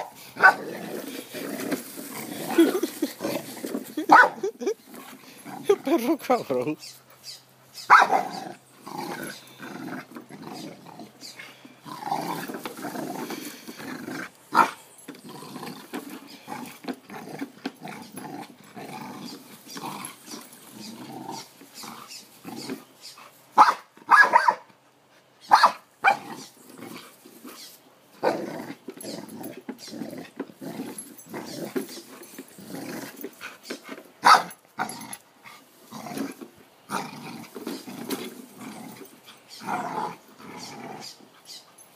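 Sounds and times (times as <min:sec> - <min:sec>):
dog growling: 0:00.4 - 0:06.0, 0:08.1 - 0:11.2, 0:11.8 - 0:22.8, 0:32.6 - 0:33.5, 0:35.9 - 0:41.2.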